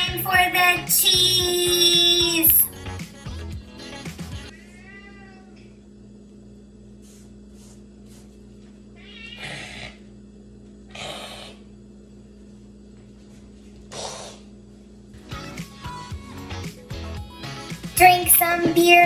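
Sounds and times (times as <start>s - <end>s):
steady low hum: 0.0s - 19.0s
meow-like rising call: 4.6s - 5.6s, 9.0s - 9.9s.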